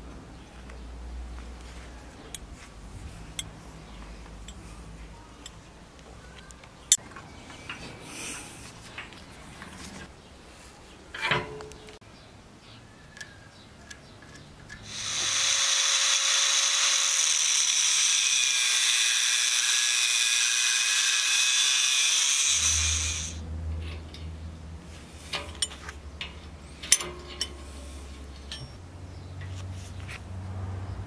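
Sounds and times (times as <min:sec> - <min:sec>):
angle grinder cutting steel: 0:14.8 - 0:23.4
sharp metal clicks: 0:25.3 - 0:27.6.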